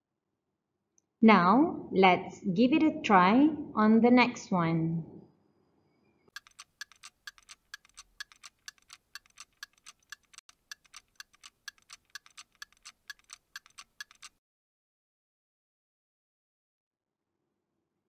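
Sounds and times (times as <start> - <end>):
clock ticking: 6.4 - 14.4.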